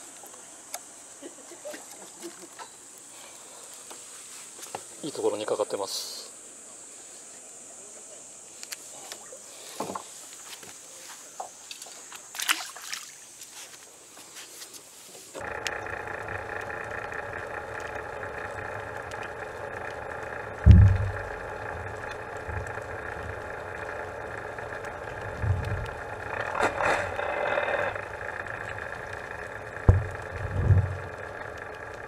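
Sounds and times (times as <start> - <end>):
muffled engine hum: 15.4 - 32.0
dull low thumps: 20.6 - 22.7, 24.8 - 26.1, 29.8 - 31.2.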